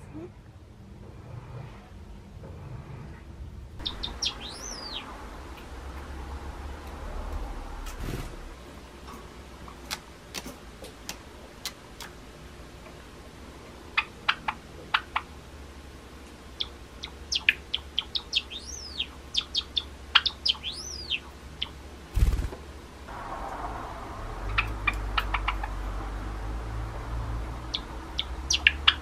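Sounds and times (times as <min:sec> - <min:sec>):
sparrow singing clicks and whistles: 0:03.8 - 0:05.1, 0:16.6 - 0:21.8.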